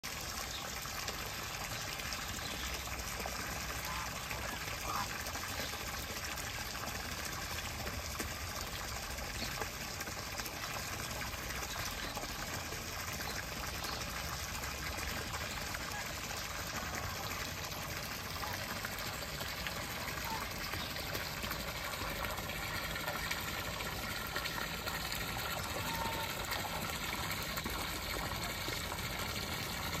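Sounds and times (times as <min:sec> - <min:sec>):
water gushing into pond: 0:00.0 - 0:30.0.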